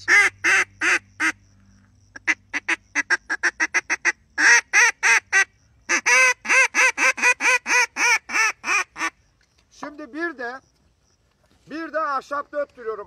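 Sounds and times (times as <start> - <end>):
duck call clucks: 0.0 - 1.4, 2.2 - 9.2
duck call quacks: 0.0 - 1.4, 2.2 - 9.2.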